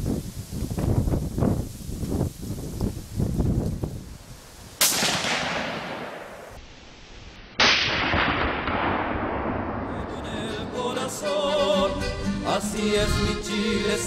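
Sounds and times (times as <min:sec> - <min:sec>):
rifle shots with long echo: 0:04.8 - 0:06.6, 0:07.6 - 0:10.3.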